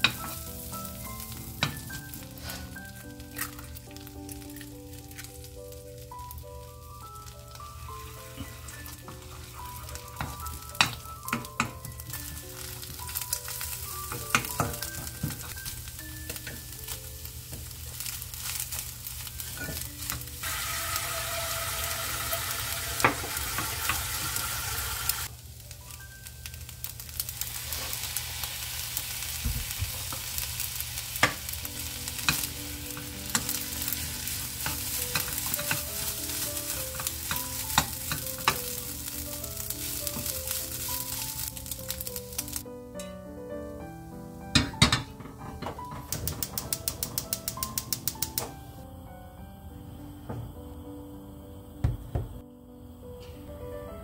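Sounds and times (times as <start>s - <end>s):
food sizzling in a frying pan: 0.0s - 45.1s
soft background music: 0.0s - 54.0s
spatula clicking against pan: 46.1s - 48.5s.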